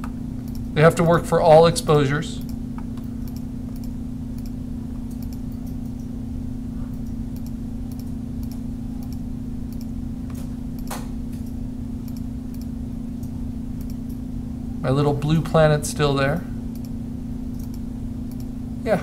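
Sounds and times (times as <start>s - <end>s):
steady low hum: 0.0s - 19.0s
computer mouse clicks: 2.4s - 6.1s, 6.9s - 14.2s, 16.7s - 18.5s.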